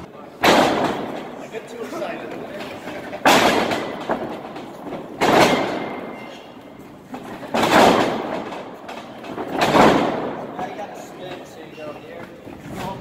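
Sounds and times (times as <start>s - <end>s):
bodies thudding on wrestling ring: 0.4s - 1.3s, 3.2s - 6.3s, 7.1s - 8.7s
wrestling ring rumbling: 0.4s - 11.4s.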